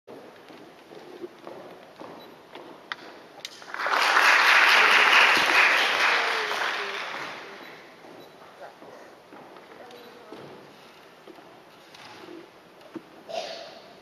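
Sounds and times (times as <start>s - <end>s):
audience applauding: 3.5s - 7.9s.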